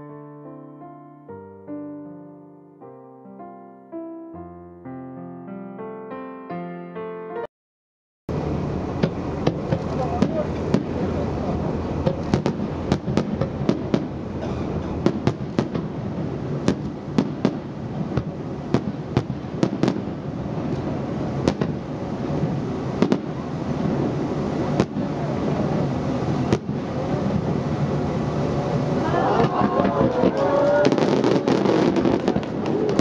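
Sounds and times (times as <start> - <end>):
fireworks bangs: 8.3 - 33.0.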